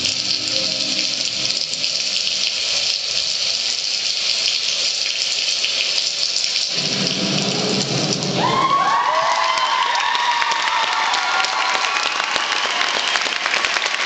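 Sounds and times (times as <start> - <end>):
hissing wash over sound system: 0.0 - 12.8
low rumble: 6.7 - 8.7.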